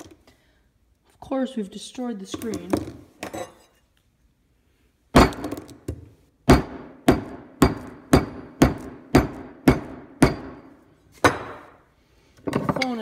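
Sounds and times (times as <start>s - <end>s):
hand tool striking smartphone: 6.5s - 10.6s.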